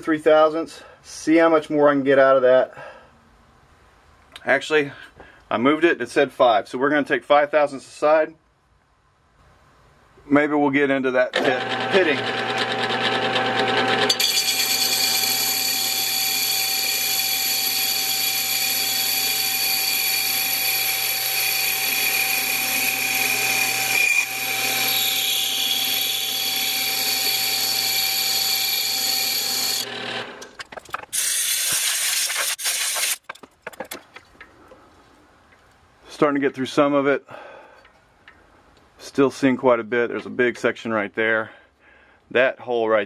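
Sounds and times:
lathe drive whining: 11.3 - 30.6
cutting tool hissing: 11.4 - 30.4, 31.2 - 33.2
knocks and rattles: 30.4 - 31.2, 33.2 - 34.5.

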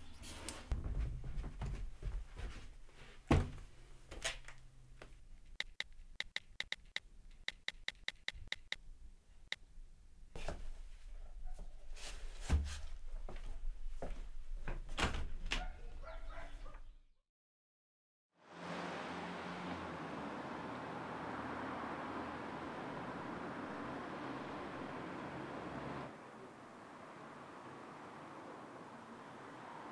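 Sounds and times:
thumps in a room: 0.7 - 2.7
footsteps: 0.7 - 3.2
smartphone keyboard clicks: 5.6 - 8.8.

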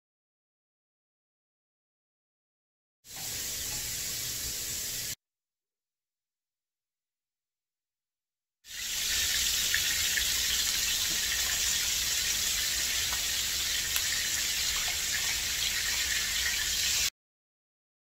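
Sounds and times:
fish sizzling in a frying pan: 3.1 - 5.2, 8.7 - 17.1.

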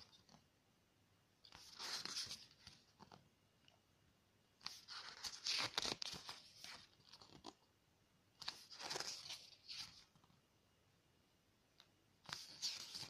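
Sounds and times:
pages turning and rustling: 1.4 - 3.2, 4.6 - 7.7, 8.4 - 10.4, 12.2 - 13.0.

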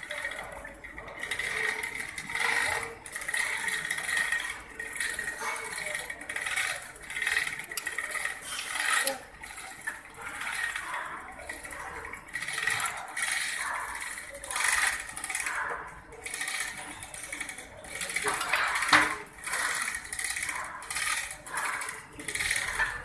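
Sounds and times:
metal tools clicking and scraping: 5.2 - 9.2, 16.4 - 23.0.

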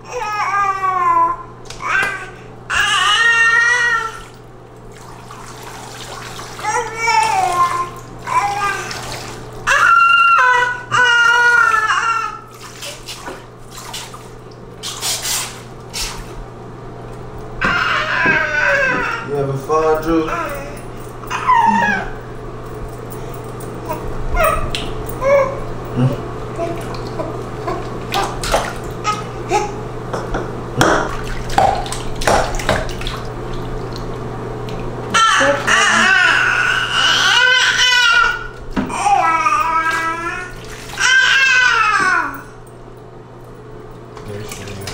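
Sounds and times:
bathwater splashing: 3.0 - 16.5, 24.4 - 42.4, 44.3 - 44.9
baby's high voice: 17.6 - 19.3, 20.2 - 22.2.

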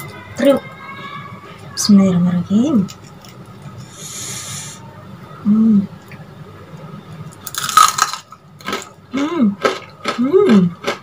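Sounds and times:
fritter crackling crunch: 7.2 - 11.0
person humming: 10.2 - 10.8.

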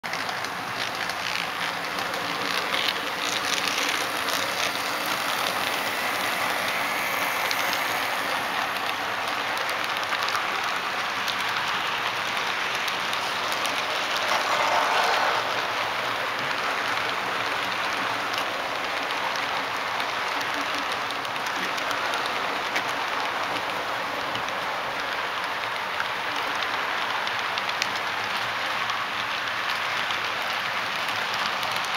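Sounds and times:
model train wheels clattering on track: 0.0 - 31.9.

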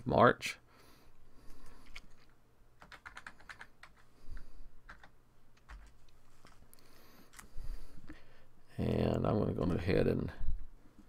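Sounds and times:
typing on computer keyboard: 2.8 - 4.1, 4.9 - 6.1.

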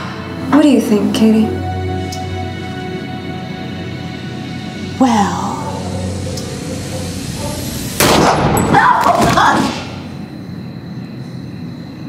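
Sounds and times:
gunshot: 8.0 - 9.8.

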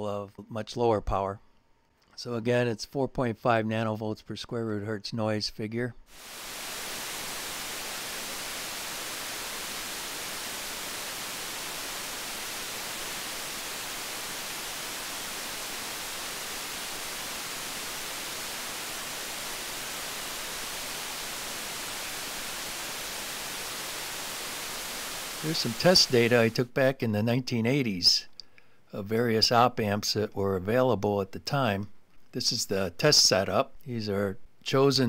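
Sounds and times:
electronic noise hiss: 6.1 - 26.9.

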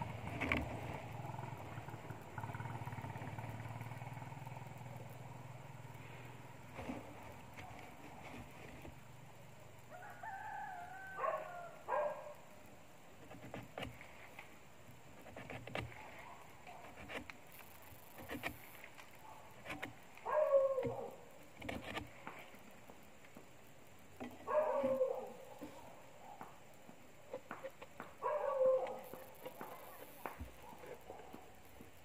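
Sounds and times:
rooster crowing: 9.9 - 12.0.

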